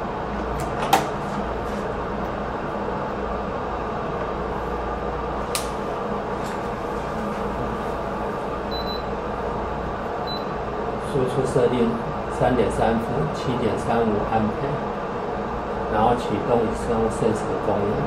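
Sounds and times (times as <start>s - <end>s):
cooling fans whirring: 0.0s - 18.0s
sharp click: 5.5s - 5.8s.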